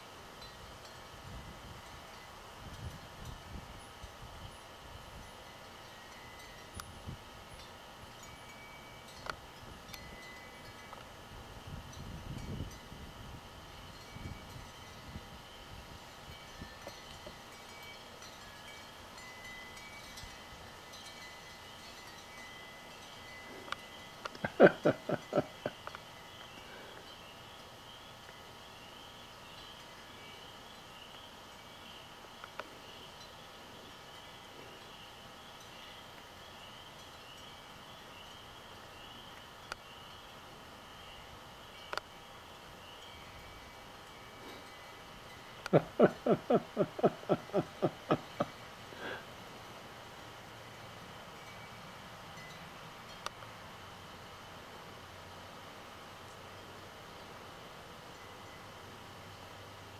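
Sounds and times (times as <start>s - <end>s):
faint background hiss: 0.0s - 59.9s
chorus of calling animals: 24.4s - 25.9s
soft ticks: 41.9s - 42.1s, 45.6s - 45.8s, 53.1s - 53.5s.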